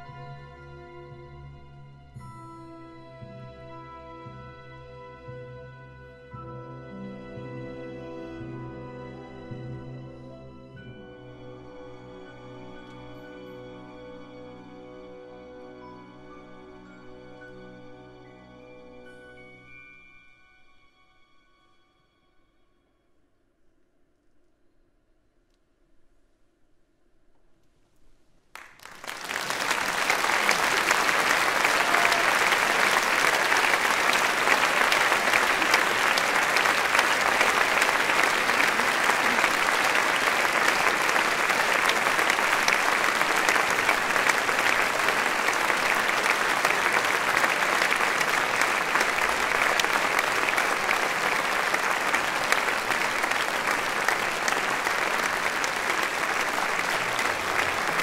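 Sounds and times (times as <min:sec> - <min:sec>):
large audience applauding: 0:28.6 - 0:58.0.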